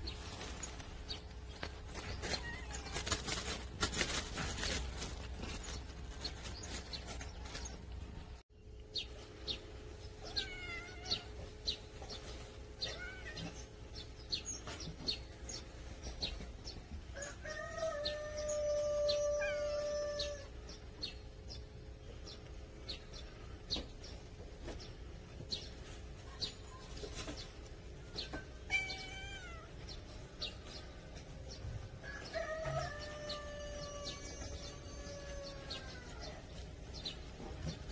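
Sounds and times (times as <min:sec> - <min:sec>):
small birds chirping: 0:00.0 - 0:37.9
rooster crowing: 0:17.1 - 0:20.5, 0:32.0 - 0:36.4.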